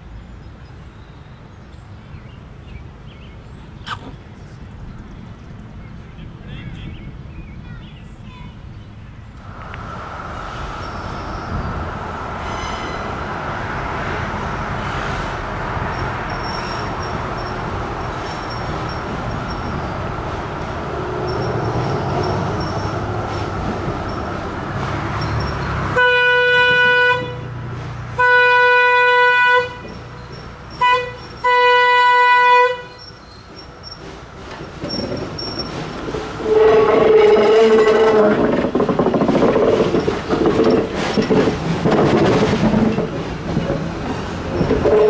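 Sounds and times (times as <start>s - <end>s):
steady rushing noise: 9.4s - 16.2s
steam locomotive whistle: 30.8s - 33.0s, 36.4s - 38.2s.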